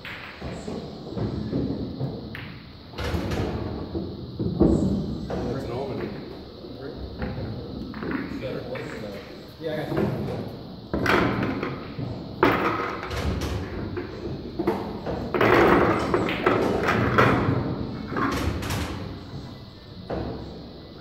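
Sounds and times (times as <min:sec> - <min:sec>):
balls knocking against wooden rack: 0:00.0 - 0:06.2
pool balls clacking together: 0:00.0 - 0:06.3, 0:07.0 - 0:21.0.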